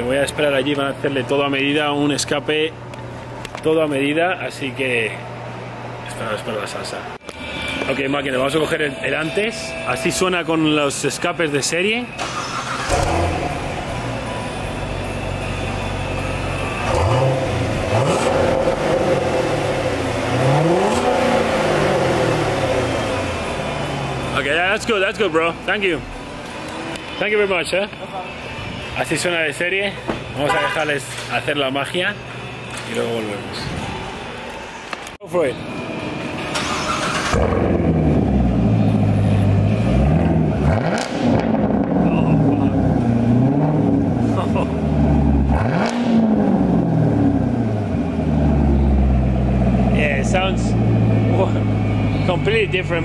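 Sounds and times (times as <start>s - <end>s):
car engine idling and revving: 7.2s - 27.3s, 35.6s - 53.0s.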